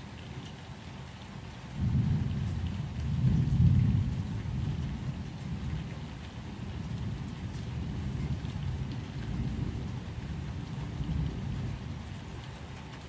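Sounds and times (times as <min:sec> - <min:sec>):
steady rain: 0:00.0 - 0:13.0
low rumble of thunder: 0:01.7 - 0:13.0.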